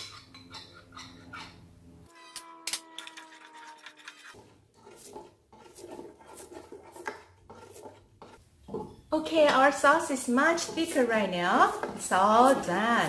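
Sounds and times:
wooden spoon stirring sauce in pot: 4.0 - 13.0.

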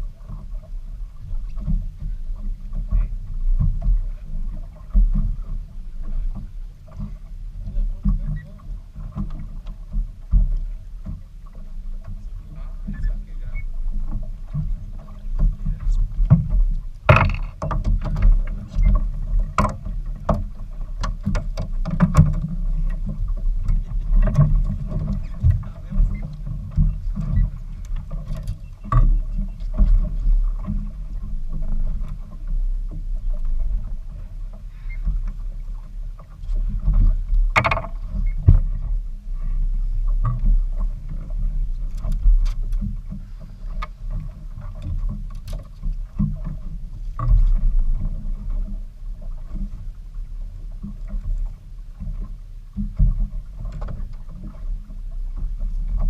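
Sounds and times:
boat engine low rumble: 0.0 - 56.0
knocks: 16.2 - 18.3.

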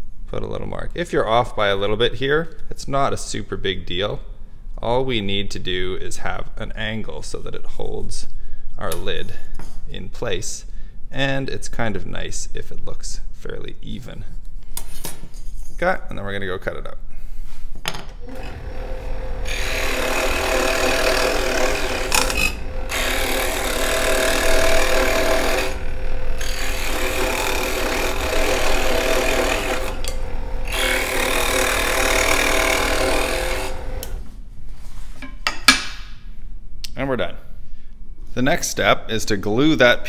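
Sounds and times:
scroll saw cutting wood: 18.2 - 34.3.

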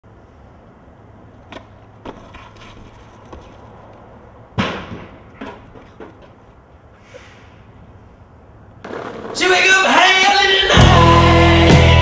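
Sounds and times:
skateboard knocks and clacks: 1.5 - 3.9, 8.8 - 9.7
skateboard slap: 8.8 - 9.7.

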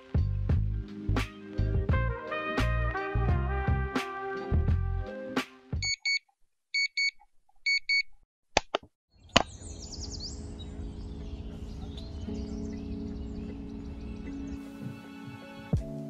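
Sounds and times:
alarm clock double beeps: 5.8 - 6.2.

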